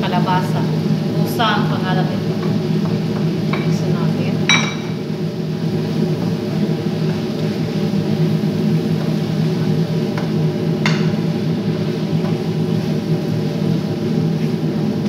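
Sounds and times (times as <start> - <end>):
spoon knocking against pot: 4.5 - 5.0, 10.2 - 11.2.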